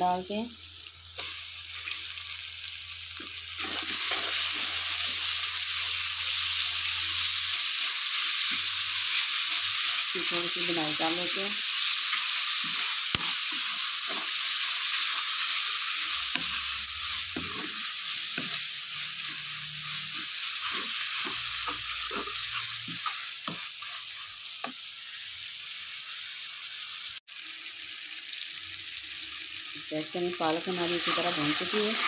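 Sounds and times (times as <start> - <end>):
spinach sizzling in a pan: 0.0 - 32.0
spatula scraping a pan: 3.2 - 5.4, 11.7 - 24.8.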